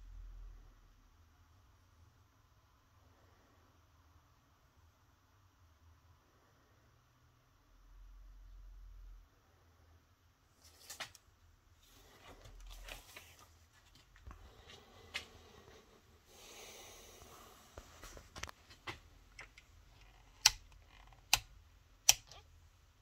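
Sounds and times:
handling rustles: 10.5s - 15.8s
rotary switch clicking: 19.4s - 22.4s.

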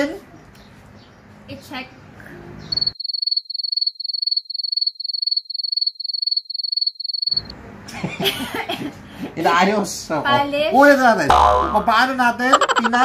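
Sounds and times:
cricket chirping: 2.7s - 7.5s.

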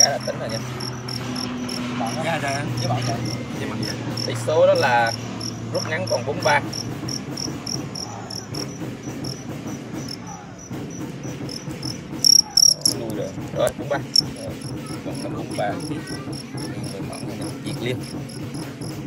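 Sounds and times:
crickets chirping: 0.0s - 9.4s, 10.0s - 10.3s, 11.4s - 13.2s, 14.1s - 19.0s.

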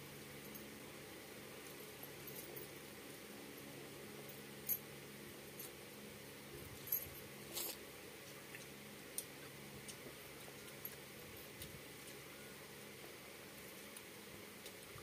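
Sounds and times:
faint steady hum: 0.0s - 15.0s.

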